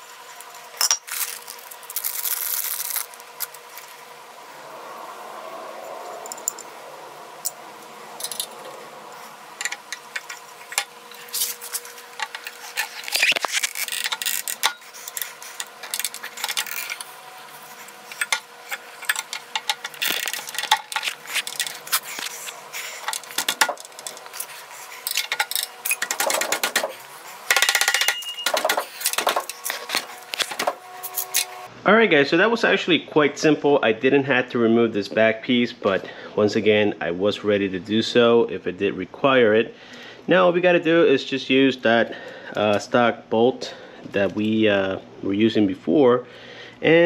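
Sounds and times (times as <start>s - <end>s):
metal parts clinking and scraping: 0.4s - 4.0s, 6.2s - 6.7s, 8.2s - 31.6s.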